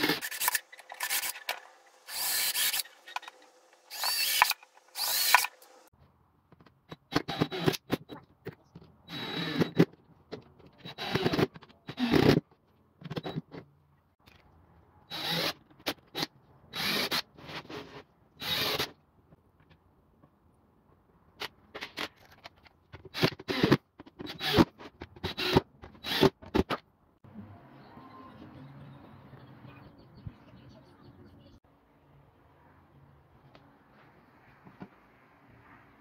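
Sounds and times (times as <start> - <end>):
cordless drill driving screws: 0.0 - 5.9, 9.1 - 9.9, 10.8 - 12.4, 15.1 - 15.6, 16.2 - 17.2, 18.4 - 18.9, 23.1 - 26.4.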